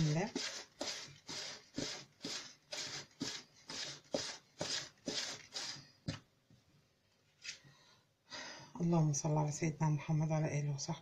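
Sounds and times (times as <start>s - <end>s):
hand stirring flour in bowl: 0.0s - 6.2s.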